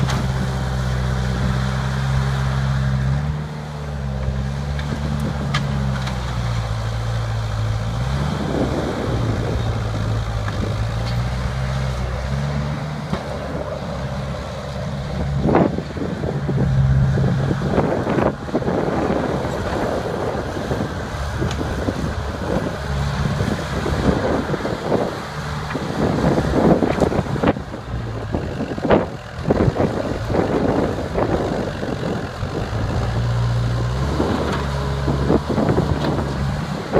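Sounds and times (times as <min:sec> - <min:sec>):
diesel engine working under load: 0:00.0 - 0:36.9
sharp cracks and knocks: 0:04.7 - 0:06.4.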